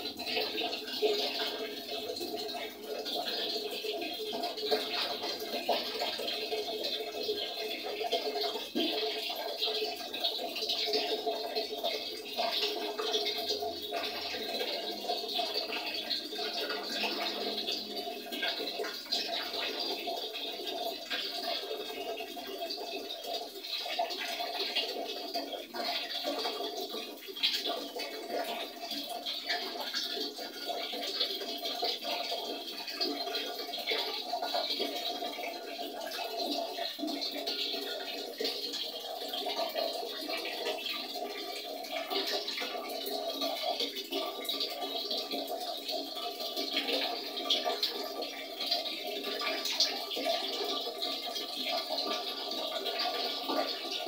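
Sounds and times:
tap water running into basin: 0.0s - 54.0s.

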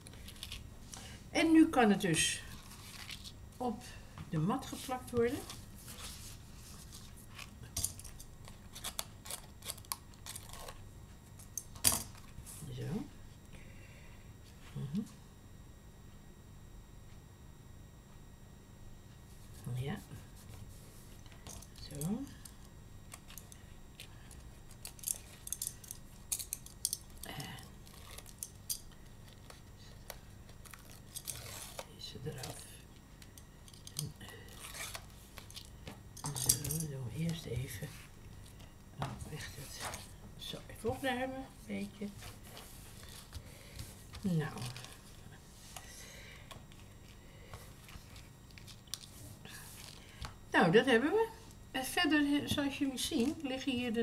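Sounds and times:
paper rustling: 2.5s - 3.4s.

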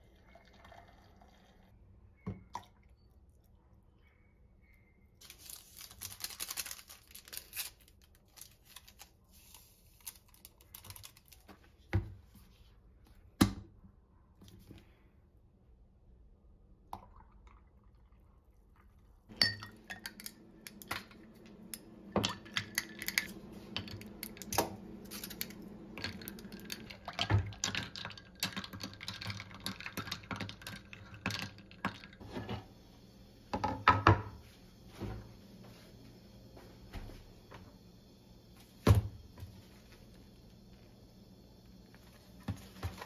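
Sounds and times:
ice cubes clinking in mug: 19.3s - 21.2s, 22.2s - 32.2s.

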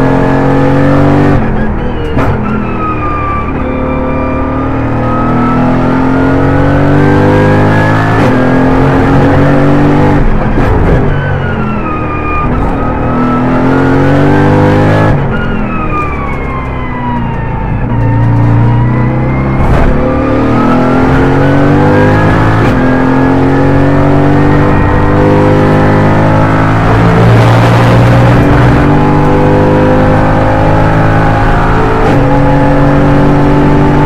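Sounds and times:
race car engine revving: 3.8s - 11.0s, 18.3s - 34.0s.

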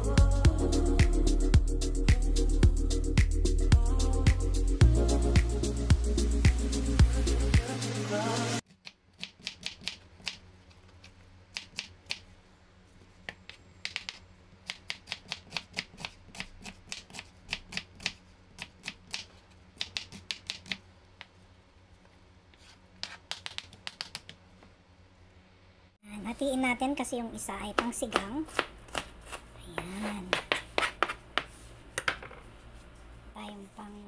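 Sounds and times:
knife tapping cutting board: 29.8s - 32.3s.

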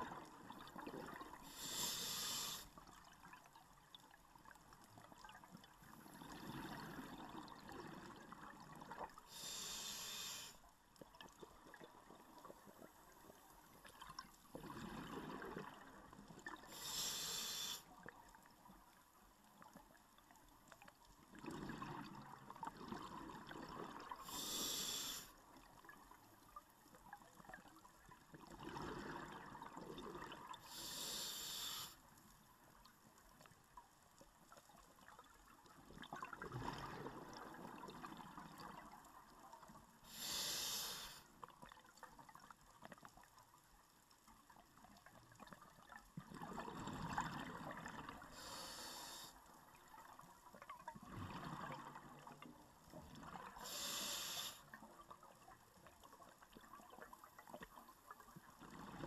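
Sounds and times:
diver breathing through regulator: 1.4s - 2.7s, 9.3s - 10.6s, 16.7s - 17.9s, 24.2s - 25.4s, 30.6s - 32.0s, 40.0s - 41.3s, 48.3s - 49.4s, 53.6s - 54.7s.

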